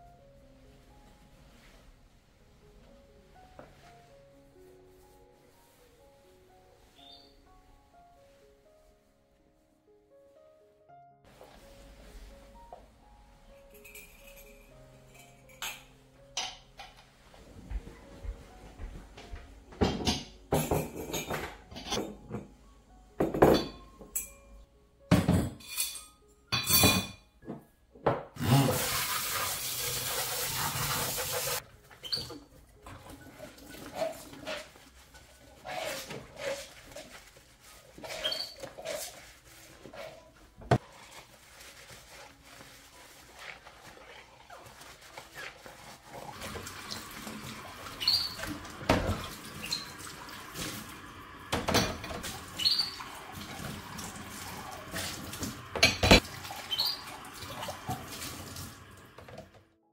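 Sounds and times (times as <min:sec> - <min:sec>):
ceramic dishes clinking: 0:19.8 - 0:22.4, 0:23.2 - 0:24.4
sponge scrubbing: 0:28.4 - 0:31.6, 0:33.0 - 0:51.1, 0:52.2 - 0:55.6
tap water running: 0:28.4 - 0:39.3, 0:40.6 - 0:59.6.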